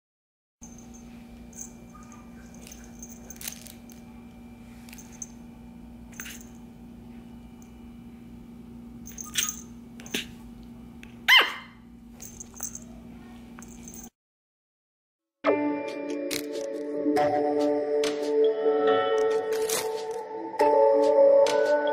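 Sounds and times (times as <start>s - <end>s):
steady low hum: 0.6s - 14.1s
puppy yip: 9.1s - 10.3s, 11.3s - 11.8s.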